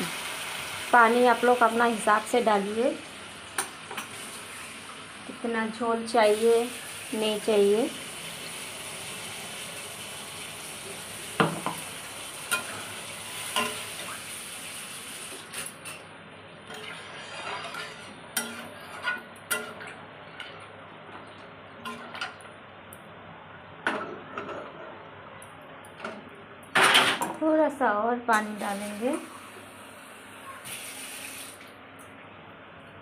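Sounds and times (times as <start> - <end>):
hiss from the pan: 0.0 - 1.9, 6.3 - 15.6, 28.4 - 31.6
metal spatula scraping a pan: 16.7 - 20.6.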